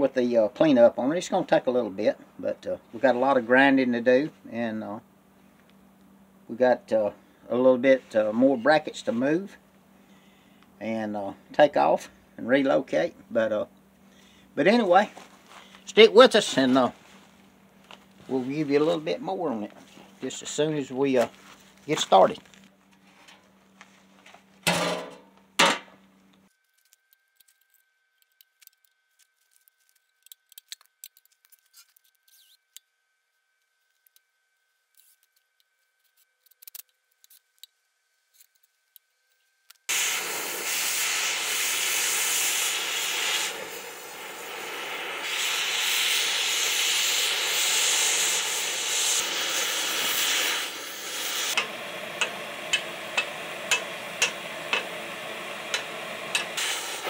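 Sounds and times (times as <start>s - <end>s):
grinder on metal: 45.2s - 57.0s.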